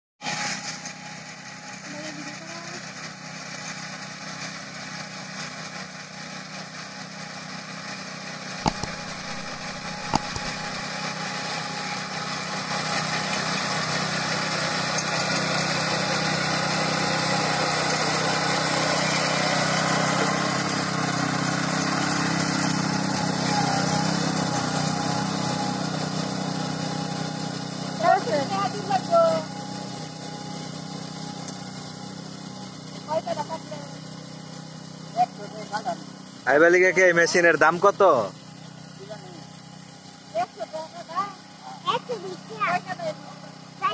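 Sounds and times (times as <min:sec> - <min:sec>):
small engine running: 0:00.2 - 0:43.9
sharp knocks: 0:08.6 - 0:10.8.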